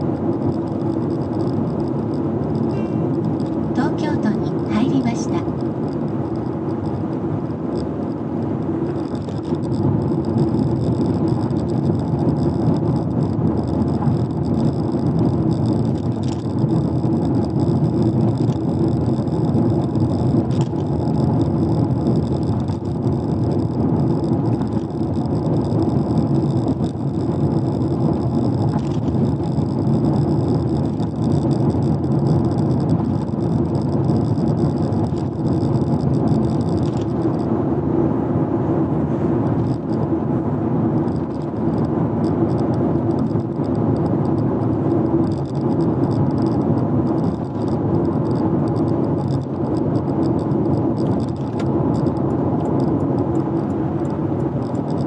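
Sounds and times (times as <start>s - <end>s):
car road and engine noise: 0.0s - 55.0s
faint high whine: 1.5s - 11.1s.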